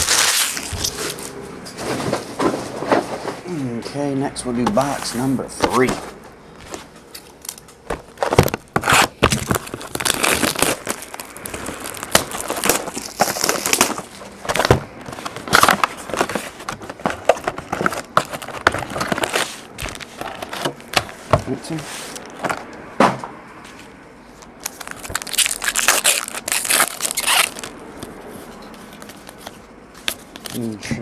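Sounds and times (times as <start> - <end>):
plastic wrap crinkling: 0.0 - 1.4, 7.3 - 22.4, 24.4 - 28.2.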